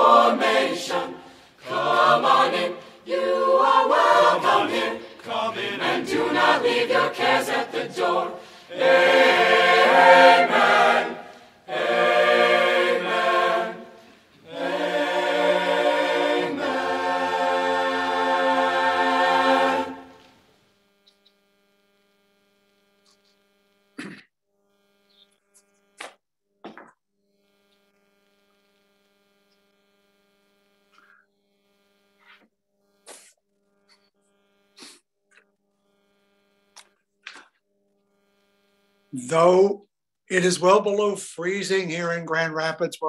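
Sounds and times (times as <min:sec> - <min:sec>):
choir singing a hymn: 0:00.0 - 0:20.3
electrical hum: 0:00.0 - 0:26.0, 0:27.3 - 0:32.2, 0:33.6 - 0:42.6.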